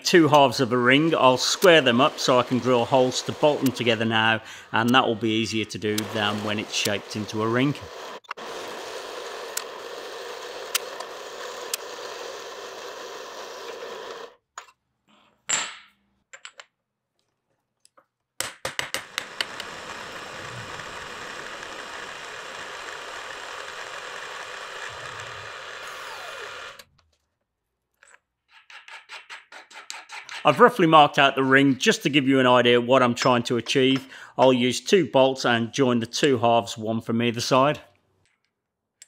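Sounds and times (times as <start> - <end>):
bandsaw cutting metal: 0.0 - 14.4, 19.0 - 26.9
milling machine cutting metal: 0.3 - 14.3, 19.1 - 26.8
clicks: 5.9 - 7.0.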